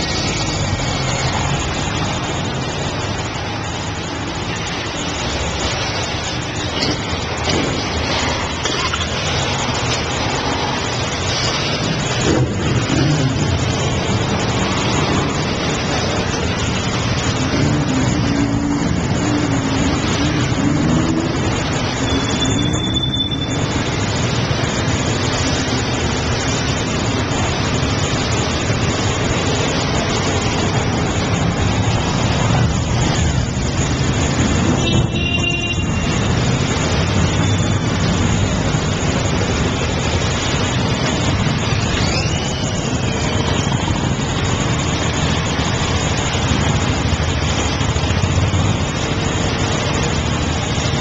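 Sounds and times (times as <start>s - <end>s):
motorcycle engines running: 0.0s - 51.0s
road noise: 0.0s - 51.0s.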